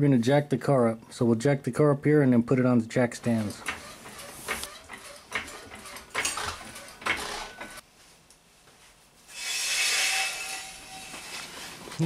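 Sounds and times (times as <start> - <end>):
floor jack ratchet clanking: 3.6 - 7.8.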